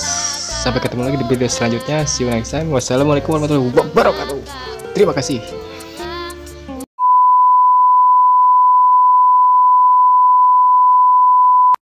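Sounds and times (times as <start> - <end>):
steady test-tone beep: 7.0 - 11.8.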